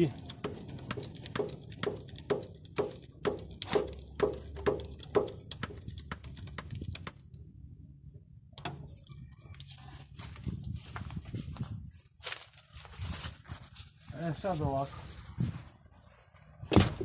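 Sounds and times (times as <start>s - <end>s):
grease gun clicking strokes: 0.0s - 7.3s.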